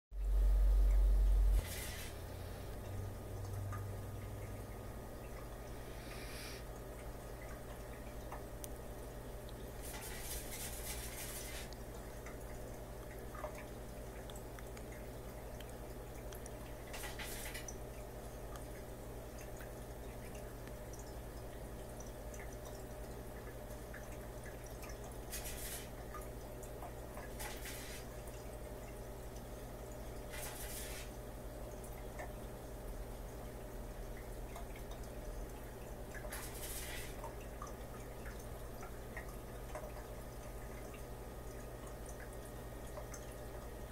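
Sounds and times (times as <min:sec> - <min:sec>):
aquarium equipment hum: 0:00.2 - 0:43.9
water dripping and trickling: 0:00.8 - 0:05.8, 0:06.6 - 0:43.9
brief hissing bursts: 0:01.6 - 0:02.2, 0:06.0 - 0:06.6.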